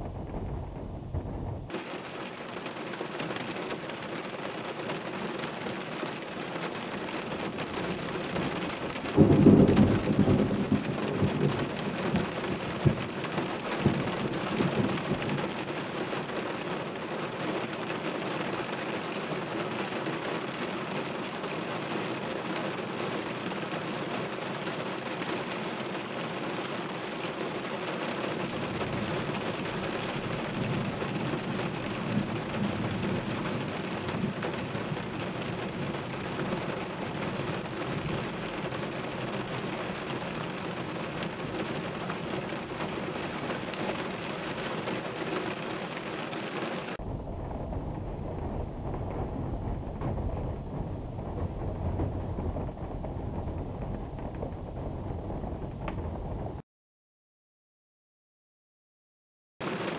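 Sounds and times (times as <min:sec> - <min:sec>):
loud thunderclap: 0:00.0 - 0:04.0, 0:06.6 - 0:18.2, 0:26.8 - 0:56.6
low rumble of thunder: 0:00.0 - 0:56.6
steady rain falling: 0:00.0 - 0:56.6, 0:59.6 - 0:59.9.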